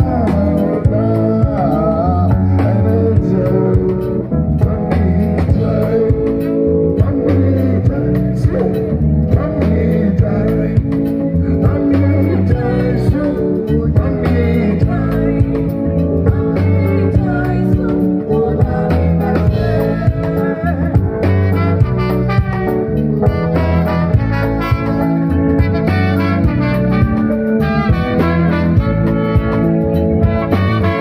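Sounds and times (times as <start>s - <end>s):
bass: 0.0s - 31.0s
drum kit: 0.0s - 31.0s
horn section: 19.7s - 31.0s.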